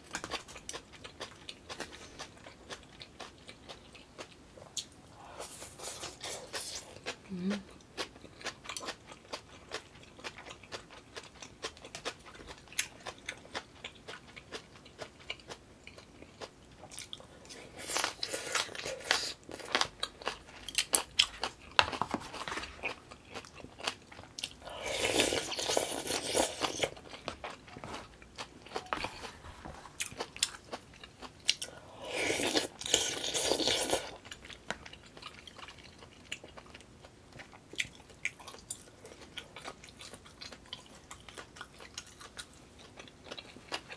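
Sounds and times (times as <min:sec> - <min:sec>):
person chewing and crunching: 0:00.0 - 0:43.9.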